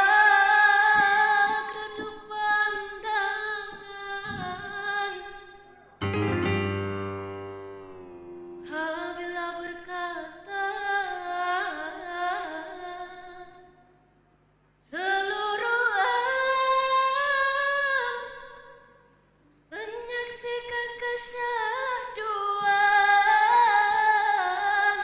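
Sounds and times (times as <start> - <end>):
woman singing: 0.0 - 5.7, 8.6 - 13.6, 14.8 - 18.7, 19.7 - 25.0
keyboard accompaniment: 6.0 - 8.7
loud low chord: 6.0 - 8.8.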